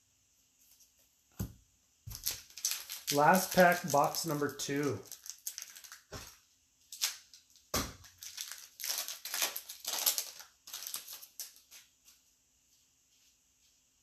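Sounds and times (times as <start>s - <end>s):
foil wrapper crinkling: 2.1s - 12.0s.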